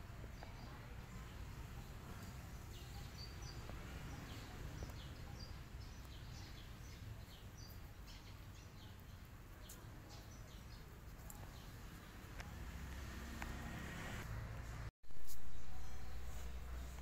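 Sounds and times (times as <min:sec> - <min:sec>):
small birds chirping: 0:00.2 - 0:13.6.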